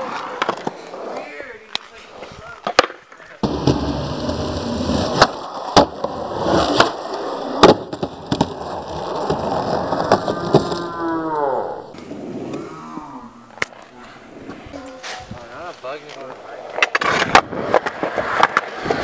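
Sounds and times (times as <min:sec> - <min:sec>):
skateboard clacks: 0:00.0 - 0:01.9, 0:02.6 - 0:11.2, 0:16.0 - 0:19.0
skateboard rolling on concrete: 0:00.0 - 0:19.0.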